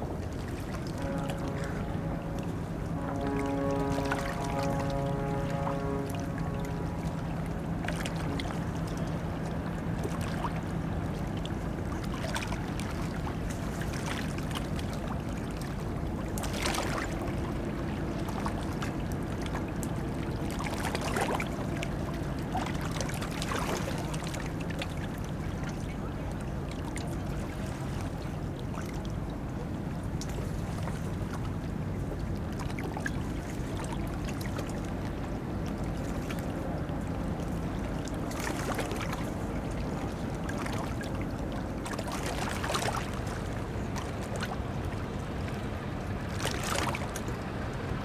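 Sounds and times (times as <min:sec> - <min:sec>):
small waves lapping: 0:00.0 - 0:48.0
diesel engine humming: 0:01.0 - 0:11.9.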